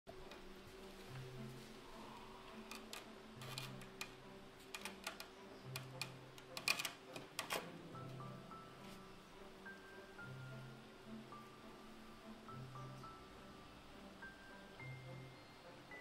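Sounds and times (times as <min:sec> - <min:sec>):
soft background music: 0:00.1 - 0:16.0
kitten claws scratching mesh screen: 0:02.7 - 0:07.7.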